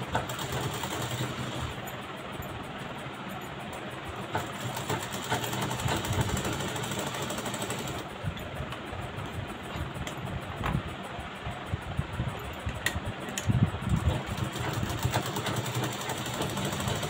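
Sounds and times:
sewing machine stitching: 0:00.0 - 0:01.9, 0:04.3 - 0:08.1, 0:14.0 - 0:17.0.

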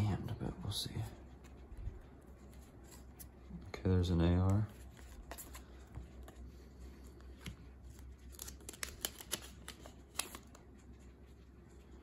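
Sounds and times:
trading cards handled: 0:04.4 - 0:10.7
foil pack crinkling open: 0:08.2 - 0:10.5.

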